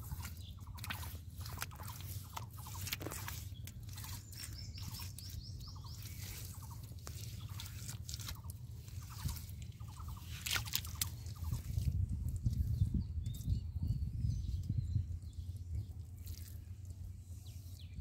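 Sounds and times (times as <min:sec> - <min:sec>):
birds chirping: 0:00.0 - 0:11.9
wet mud squelching: 0:00.0 - 0:13.5, 0:15.4 - 0:17.8.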